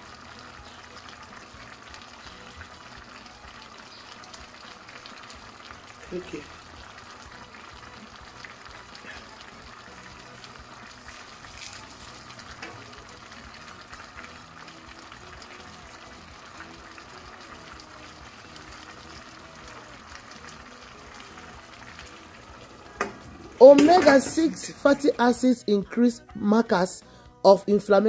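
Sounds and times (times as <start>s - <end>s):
food sizzling in a pan: 0.0s - 26.3s
faint crackles: 6.8s - 24.0s.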